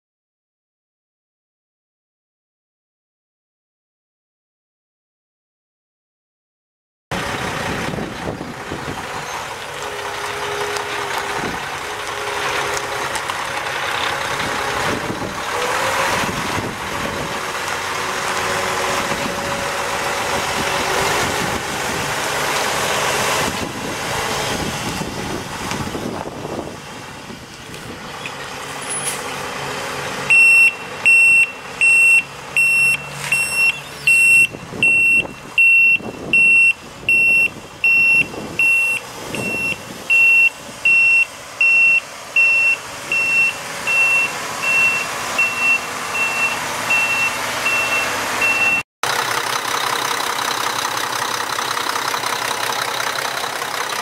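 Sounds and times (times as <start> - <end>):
diesel truck engine running: 7.1 - 54.0
back-up alarm beeping: 30.3 - 48.8.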